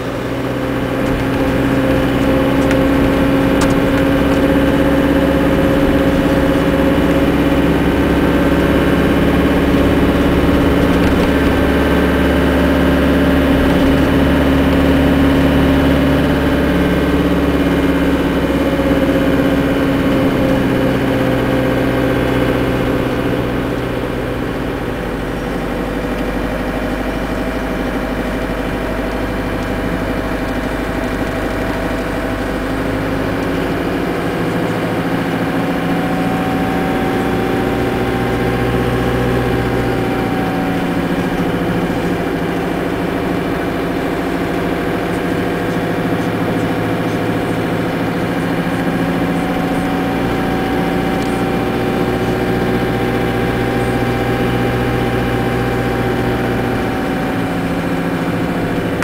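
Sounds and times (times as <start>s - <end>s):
vehicle engine drone: 0.0s - 59.0s.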